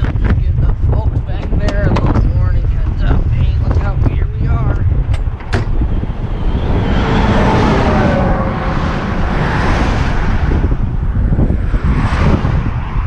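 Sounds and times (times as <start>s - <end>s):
wind rumbling on microphone: 0.0s - 13.0s
highway traffic passing: 4.3s - 13.0s.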